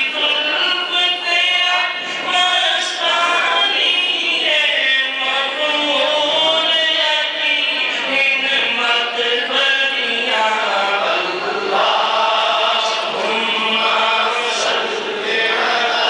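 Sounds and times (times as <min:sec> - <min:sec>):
man chanting into a microphone: 0:00.0 - 0:16.0.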